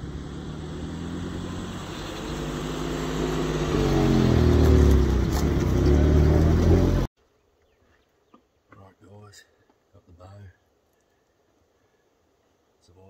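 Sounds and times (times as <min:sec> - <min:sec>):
vehicle engine driving past: 0:00.0 - 0:07.1.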